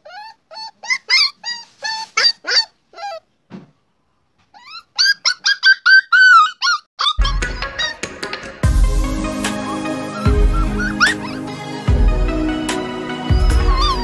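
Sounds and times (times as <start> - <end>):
puppy whining and whimpering: 0.0 - 3.3, 4.5 - 8.0, 10.0 - 11.9, 13.3 - 14.0.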